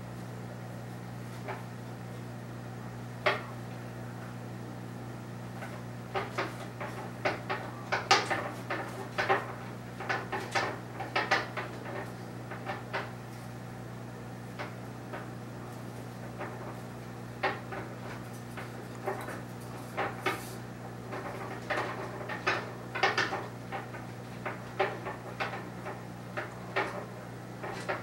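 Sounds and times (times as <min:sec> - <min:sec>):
sharp clicks and knocks: 0:03.2 - 0:03.6, 0:05.6 - 0:13.2, 0:14.6 - 0:15.4, 0:16.2 - 0:16.8, 0:17.4 - 0:28.0.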